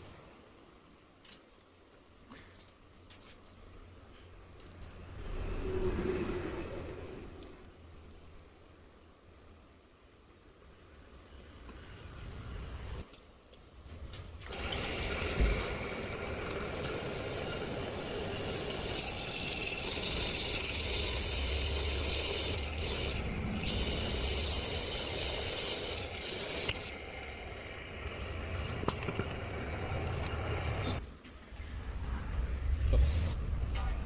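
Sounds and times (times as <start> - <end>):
drill boring through steel: 14.4 - 31.0.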